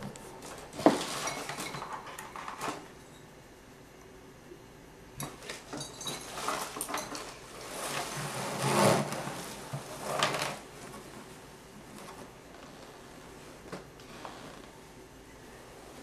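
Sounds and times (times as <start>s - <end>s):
plastic bag and fabric rustling: 5.4s - 14.7s.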